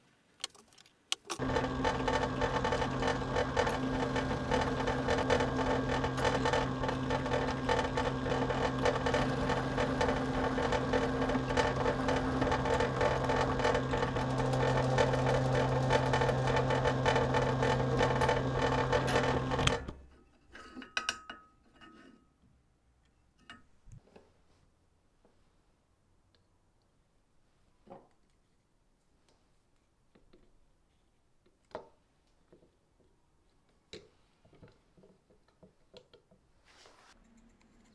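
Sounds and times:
drill bit cutting steel and wood: 0:01.4 - 0:20.0
drill press running: 0:01.4 - 0:20.0.

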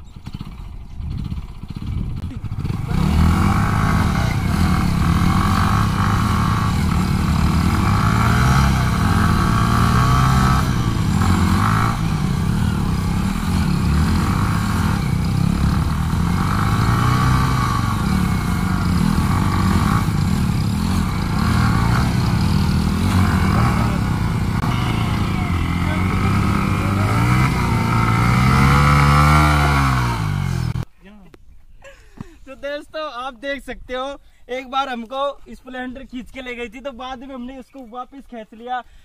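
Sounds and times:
motorcycle engines revving: 0:00.0 - 0:30.9.

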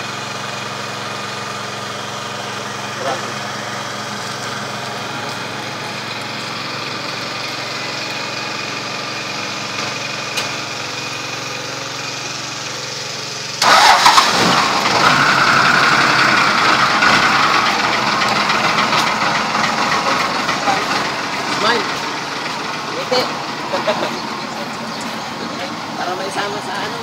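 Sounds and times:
engine idling: 0:00.0 - 0:27.0
loud rough rush of noise: 0:10.8 - 0:27.0.

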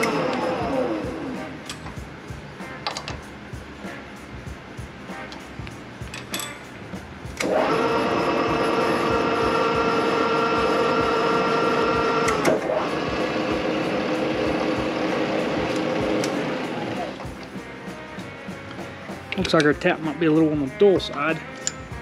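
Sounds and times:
milling machine spindle hum: 0:00.0 - 0:01.7, 0:07.4 - 0:17.2.

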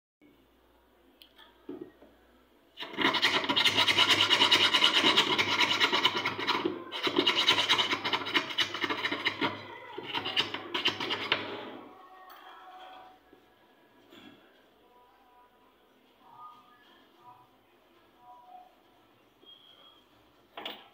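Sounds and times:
rapid rhythmic scratching: 0:02.8 - 0:11.8.

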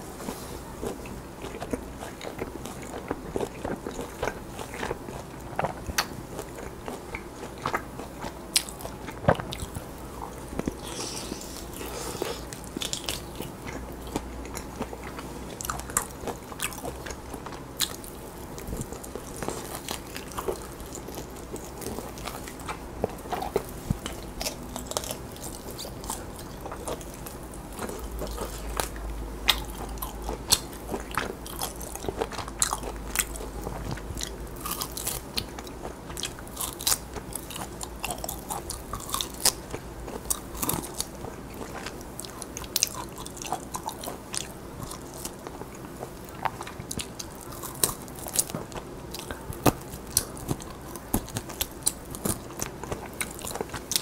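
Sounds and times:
person chewing meat: 0:00.0 - 0:54.0.

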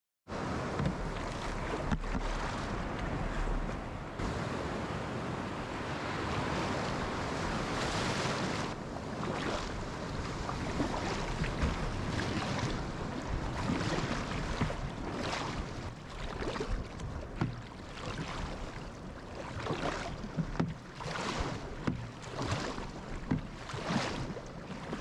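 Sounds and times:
breaking surf: 0:00.3 - 0:18.9
water splashing against kayak hull: 0:00.3 - 0:25.0.

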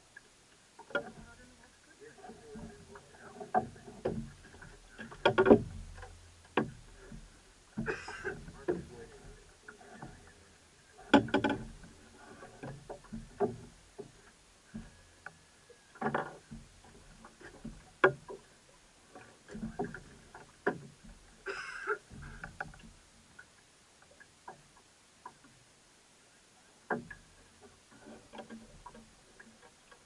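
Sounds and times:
gear knocking and clunking on boat: 0:00.8 - 0:01.6, 0:02.2 - 0:23.5, 0:26.8 - 0:30.0.

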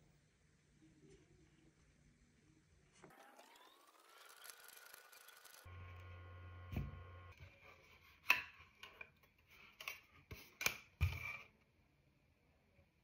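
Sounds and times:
faint steady hum: 0:05.6 - 0:07.7.

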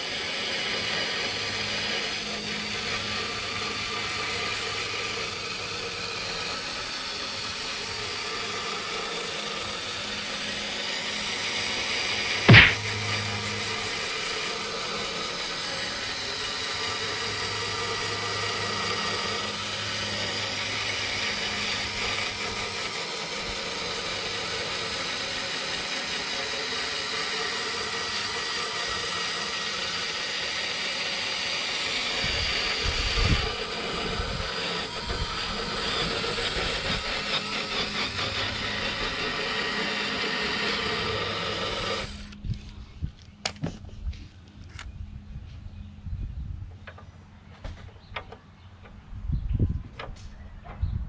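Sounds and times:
drill with wire brush on metal: 0:00.0 - 0:42.4
knocks: 0:12.5 - 0:12.8.

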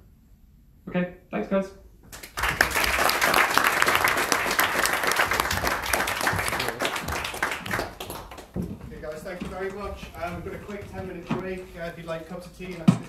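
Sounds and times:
audience applauding: 0:02.1 - 0:10.7.

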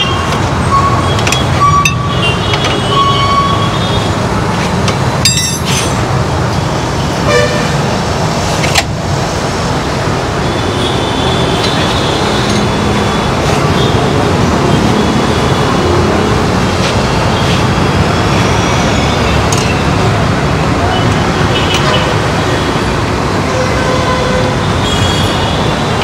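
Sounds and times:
street traffic noise: 0:00.0 - 0:26.0
vehicle horns tooting: 0:07.2 - 0:07.8, 0:23.4 - 0:25.8.

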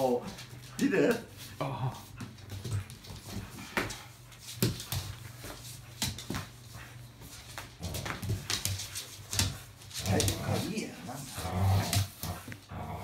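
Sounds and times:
sharp knocks and scuffs: 0:00.3 - 0:10.4.

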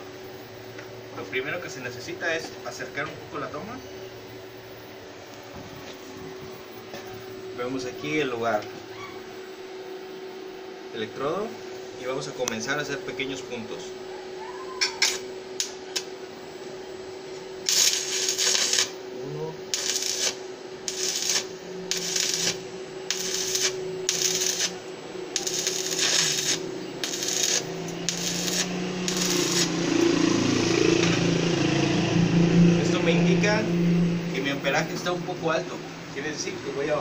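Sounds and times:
steady hum: 0:00.0 - 0:37.0
welding arc hissing: 0:15.0 - 0:16.1, 0:17.6 - 0:19.0, 0:19.6 - 0:31.4.

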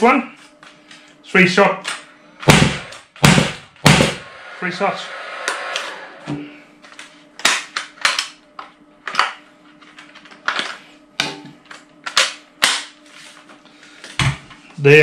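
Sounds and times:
combustion fan hum: 0:00.0 - 0:15.0
nail gun sharp cracks: 0:12.1 - 0:12.9.

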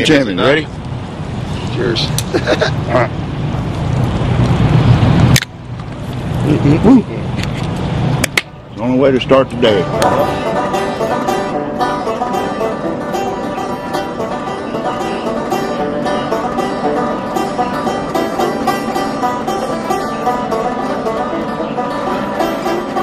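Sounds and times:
acoustic guitar: 0:09.8 - 0:23.0
banjo: 0:09.8 - 0:23.0.

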